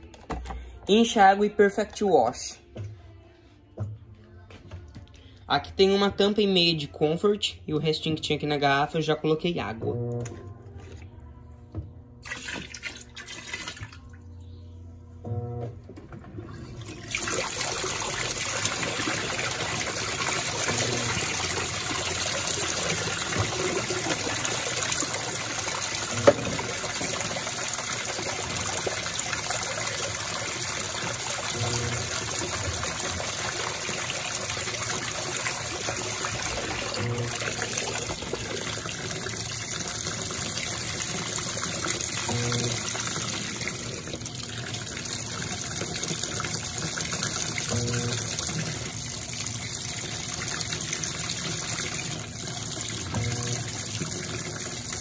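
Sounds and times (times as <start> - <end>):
water gushing into washing machine: 12.2 - 14.3, 15.2 - 55.0.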